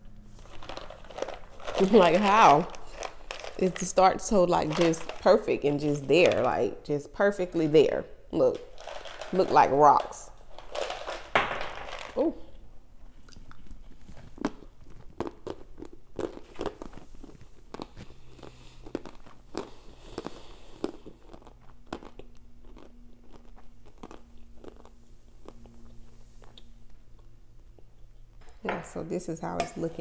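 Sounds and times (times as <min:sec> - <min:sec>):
crunchy chewing: 0:13.1 - 0:28.4.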